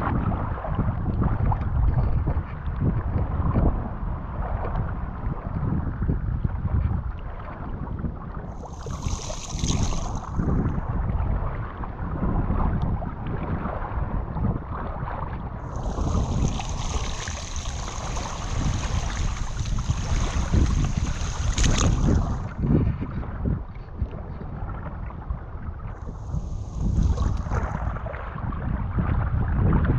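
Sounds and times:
wind buffeting microphone: 0.0s - 29.9s
water sloshing around waders: 8.6s - 11.0s, 15.6s - 22.6s, 26.0s - 28.5s.

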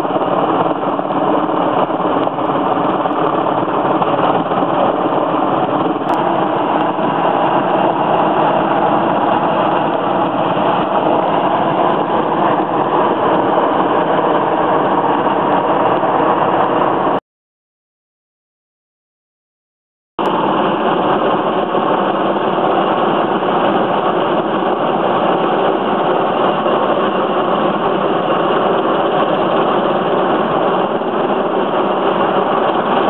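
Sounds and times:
helicopter engines and rotor drone: 0.0s - 17.2s, 20.2s - 33.0s.

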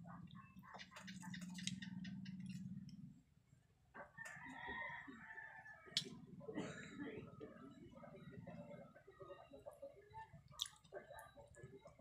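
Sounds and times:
mouth clicks and smacks eating: 0.3s - 2.6s, 10.5s - 11.6s
rooster crowing: 4.2s - 6.0s.

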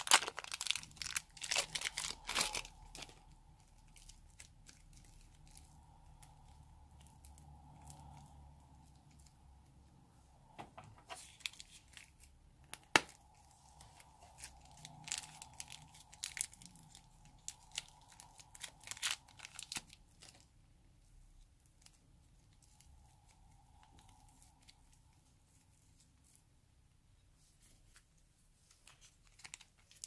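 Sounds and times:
rubber balloon tearing crackles: 0.0s - 3.3s
soft clay handling: 0.8s - 30.0s.

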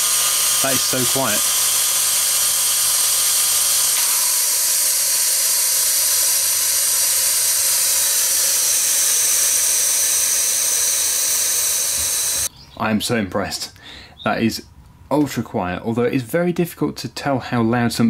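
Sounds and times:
air hissing from compressor: 0.0s - 12.5s.

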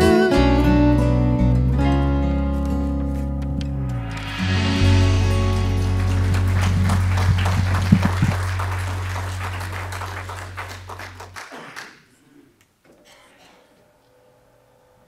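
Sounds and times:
music holding final chord: 2.6s - 11.3s
congregation applauding: 4.1s - 12.2s.

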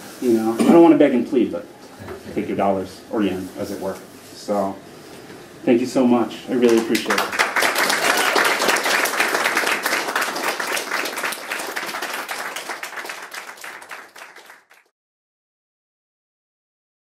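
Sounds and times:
audience applauding: 6.6s - 14.9s.

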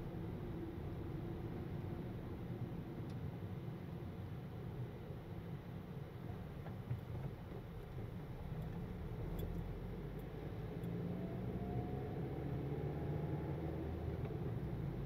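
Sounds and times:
car engine and road noise: 0.0s - 15.0s
faint rising whine: 8.3s - 15.0s.

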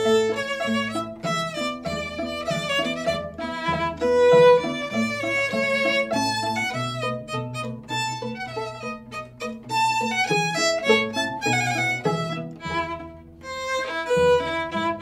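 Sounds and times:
string quartet playing quick notes: 0.0s - 15.0s.

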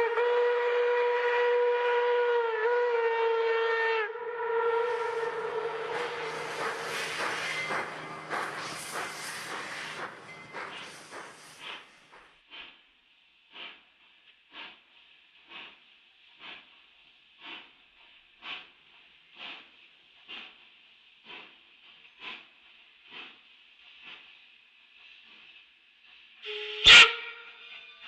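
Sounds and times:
steam locomotive chuffing: 4.5s - 28.0s
steady steam hiss: 4.9s - 12.8s, 13.4s - 26.6s.

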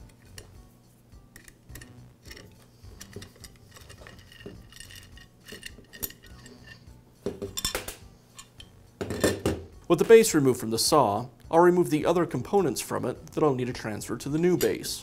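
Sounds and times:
wrench clicking and clinking on metal: 1.4s - 9.4s, 14.3s - 14.9s.

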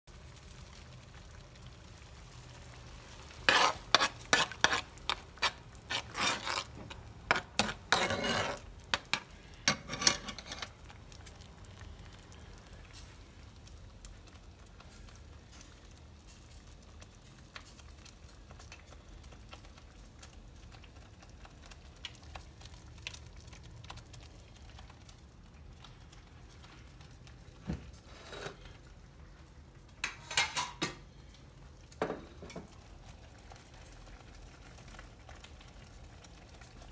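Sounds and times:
metal utensil clinking on cookware: 7.3s - 10.7s, 30.0s - 31.0s.

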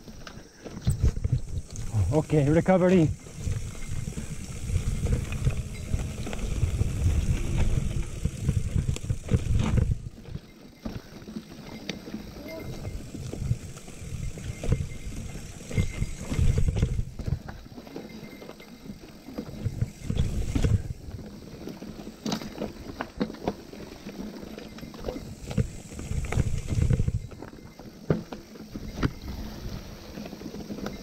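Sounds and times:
bike rattling over bumps: 0.0s - 31.0s
wind buffeting microphone: 0.8s - 10.4s, 12.6s - 17.6s, 19.5s - 21.3s, 25.2s - 27.4s.

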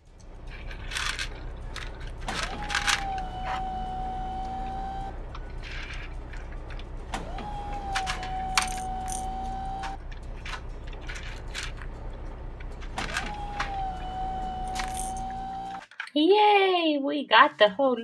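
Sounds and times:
plastic toy rocks clattering: 0.6s - 2.1s.

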